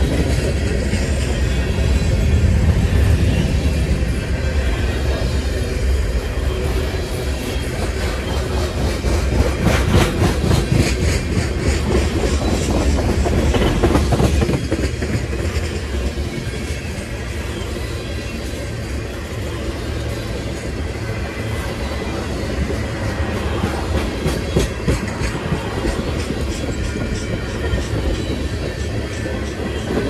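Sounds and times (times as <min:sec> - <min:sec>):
train wheels rumbling on rail: 0:00.0 - 0:30.0
rapid clickety-clack: 0:07.4 - 0:18.6, 0:20.1 - 0:30.0.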